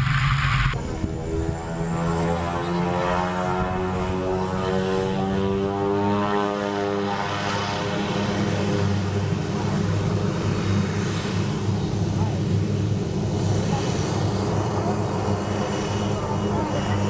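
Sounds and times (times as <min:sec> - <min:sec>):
high turbine whine: 0:00.0 - 0:04.5
turboprop engine drone: 0:00.0 - 0:17.0.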